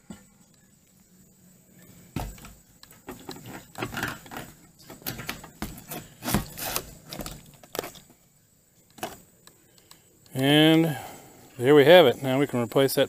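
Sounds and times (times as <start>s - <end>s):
metal scraping and clunking: 2.1s - 8.1s.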